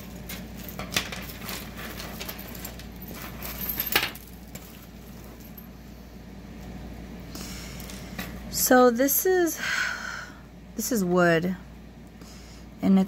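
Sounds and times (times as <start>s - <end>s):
plastic bag rustling: 0.0s - 5.6s
metal jewelry clinking: 0.0s - 5.8s.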